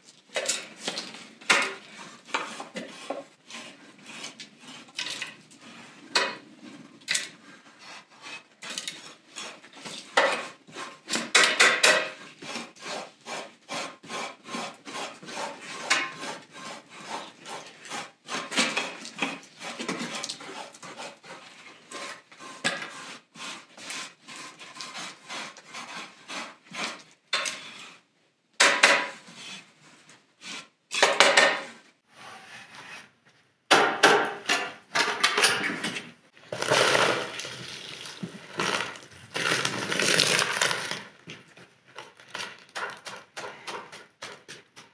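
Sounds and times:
scrapers scraping wet mud: 36.4 - 41.2.

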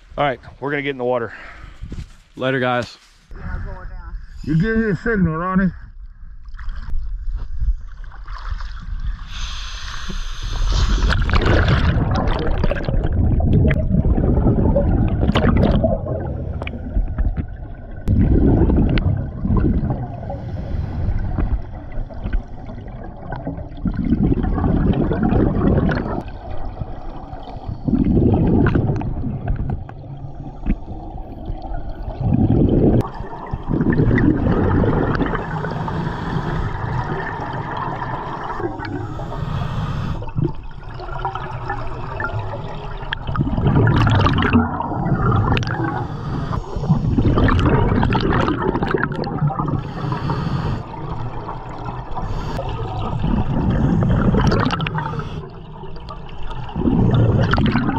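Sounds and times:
water splashing: 7.8 - 39.6, 40.2 - 57.9
underwater exhalation bubbles: 10.6 - 39.5, 40.2 - 57.9.

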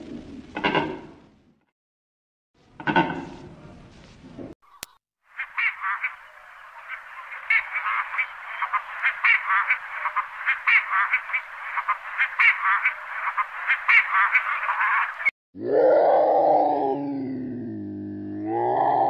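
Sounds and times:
chorus of high-pitched animal calls: 5.4 - 19.0.

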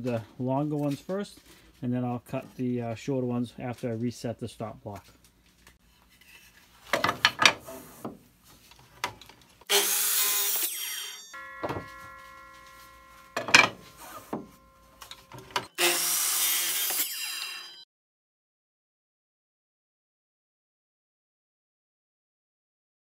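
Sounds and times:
miter saw cutting wood: 9.7 - 17.9
wooden knocks: 11.4 - 12.4, 13.4 - 14.5.

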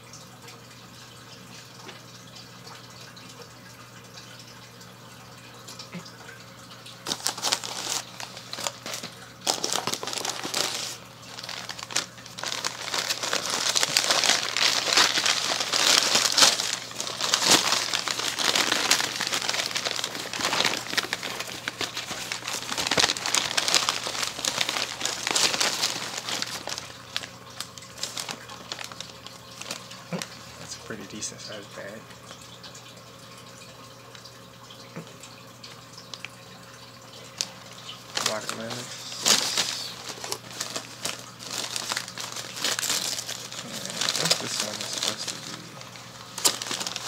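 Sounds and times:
packing material crinkling: 6.8 - 30.5, 37.3 - 47.0.

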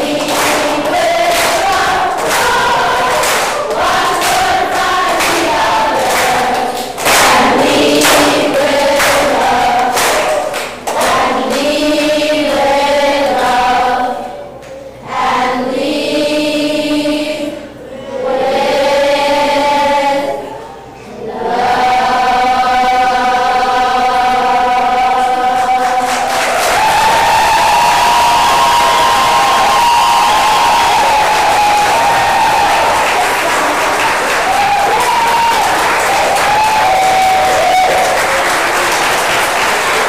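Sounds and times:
sharp rhythmic beats: 0.0 - 12.6
children's choir singing: 0.0 - 40.0.

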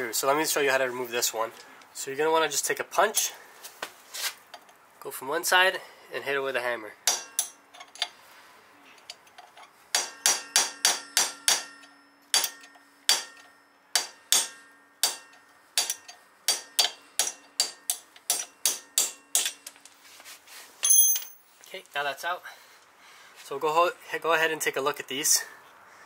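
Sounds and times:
hammer striking metal punch: 7.0 - 7.6, 9.9 - 19.6.

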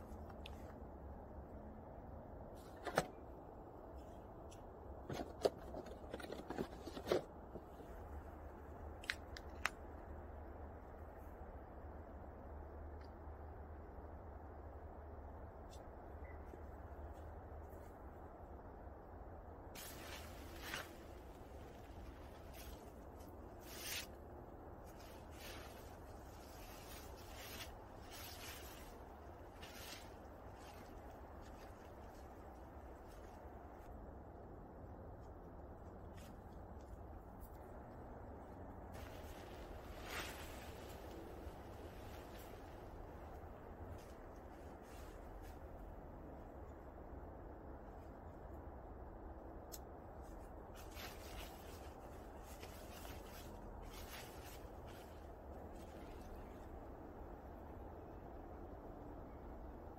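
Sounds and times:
cans set down in snow: 2.6 - 3.2, 5.0 - 7.7
sleeping bag fabric rustling: 19.8 - 24.1, 39.0 - 43.0, 50.8 - 56.2.

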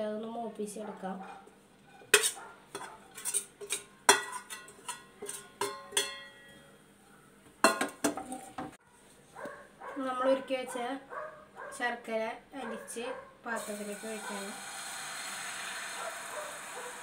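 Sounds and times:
metal spoon clanking on metal: 2.0 - 6.5, 7.6 - 8.5.

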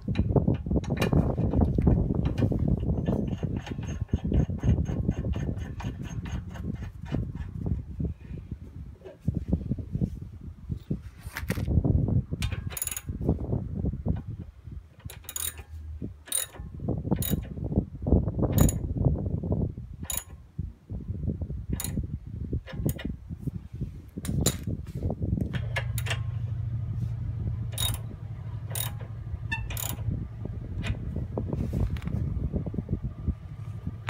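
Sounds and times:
steady low hum: 11.7 - 34.0
ratchet wrench clicking: 12.4 - 13.1, 15.0 - 16.6, 17.2 - 17.5, 18.6 - 18.8, 20.0 - 20.4, 21.8 - 22.0, 25.4 - 26.3, 27.7 - 30.1
low metal rattling: 24.2 - 31.6.

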